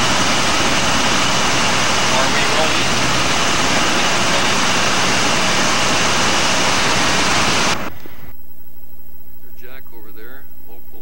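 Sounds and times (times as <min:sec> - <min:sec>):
aircraft cockpit engine and wind: 0:00.0 - 0:08.3
quiet steady hum: 0:07.7 - 0:11.0.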